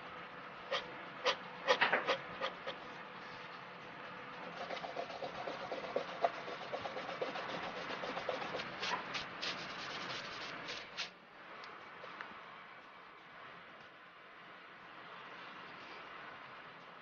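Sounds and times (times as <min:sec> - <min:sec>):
pen nib scratching on paper: 0:04.4 - 0:11.1.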